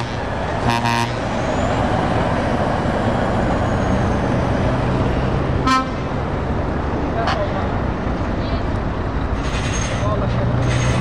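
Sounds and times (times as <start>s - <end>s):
truck horn toot: 0.0s - 1.3s, 5.6s - 6.1s
truck diesel engine: 0.0s - 11.0s.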